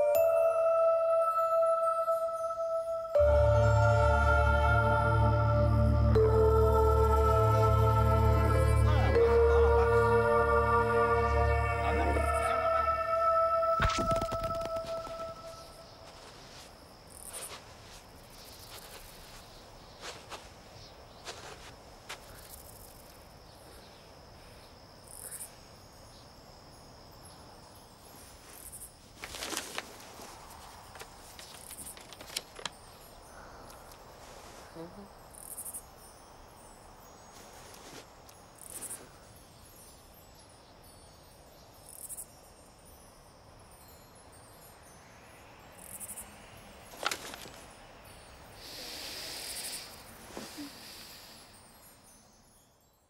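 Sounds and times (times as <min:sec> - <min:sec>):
higher chirps: 0:00.0 - 0:16.7
faint steady hiss: 0:00.0 - 0:53.0
crickets trilling: 0:00.7 - 0:53.0.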